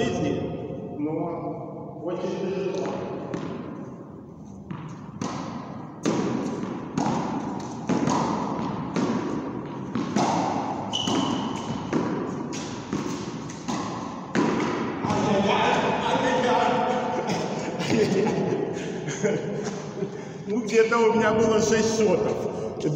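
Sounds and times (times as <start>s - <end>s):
balls bouncing on concrete: 4.5s - 15.9s
tennis balls popping off racket: 4.6s - 15.3s.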